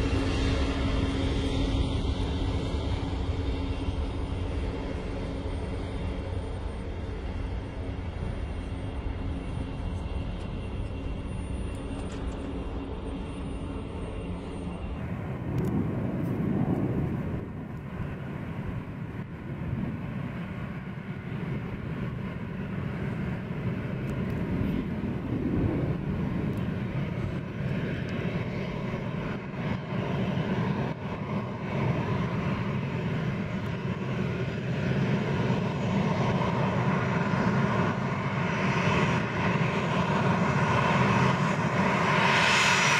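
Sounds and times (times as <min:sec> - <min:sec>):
distant low jet rumble: 0:00.0 - 0:42.9
jet engines whining: 0:00.0 - 0:42.9.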